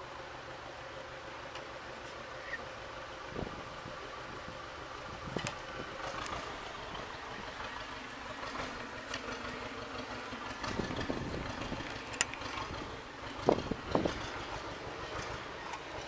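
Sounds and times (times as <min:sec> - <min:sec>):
steady low rumble: 0:00.0 - 0:16.0
light metal clicks and knocks: 0:11.5 - 0:15.9.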